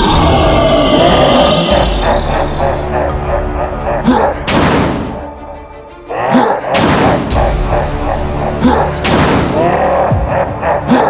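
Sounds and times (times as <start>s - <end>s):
background music: 0.0s - 11.0s
cartoon explosion sound effects: 4.5s - 5.2s, 6.8s - 7.5s, 9.0s - 9.7s.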